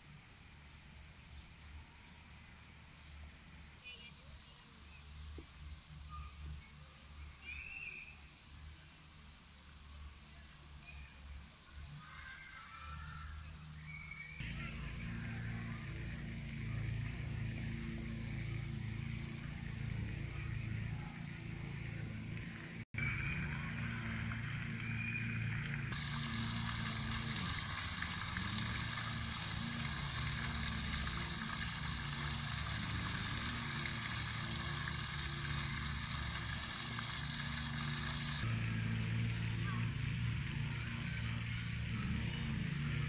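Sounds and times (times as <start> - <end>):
fountain spray splashing: 7.0 - 38.5
low steady hum: 14.4 - 43.0.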